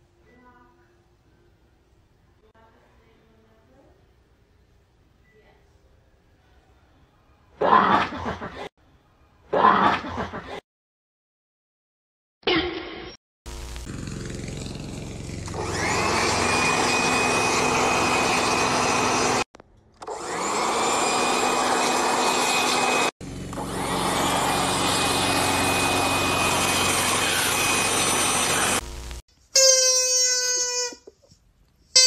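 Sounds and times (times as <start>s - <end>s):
leaf blower motor whine: 13.5s - 29.2s.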